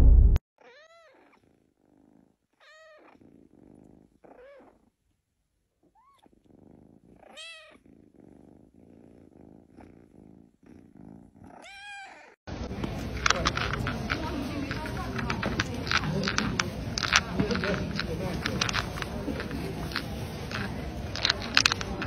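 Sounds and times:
kitten purring: 0.7 - 22.0.

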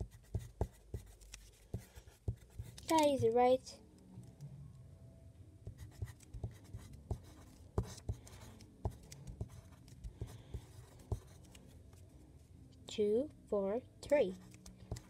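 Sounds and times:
pencil scratching on paper: 0.0 - 3.3, 5.7 - 11.6.

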